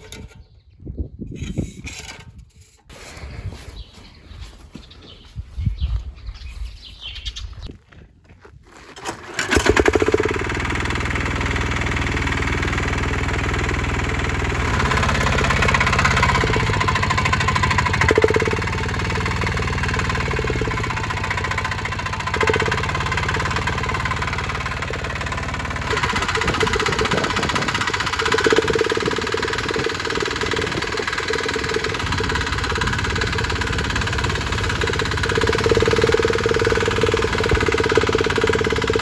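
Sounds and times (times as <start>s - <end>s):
diesel engine revving: 9.3s - 39.0s.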